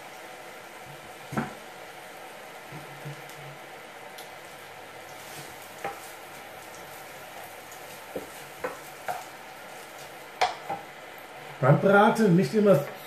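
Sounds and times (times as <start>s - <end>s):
food sizzling in a frying pan: 0.0s - 13.0s
wooden spatula knocking pan: 5.8s - 6.1s, 8.0s - 9.4s, 10.0s - 10.9s.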